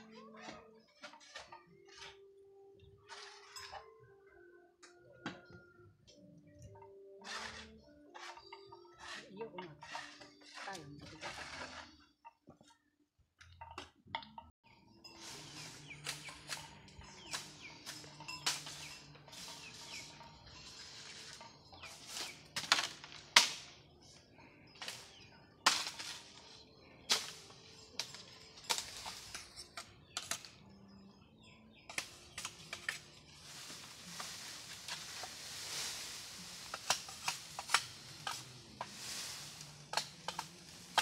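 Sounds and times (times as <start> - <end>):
hand tool hacking at soil: 21.9 - 23.8, 24.8 - 26.3, 31.9 - 41.0
rustling of dry brush: 32.8 - 41.0.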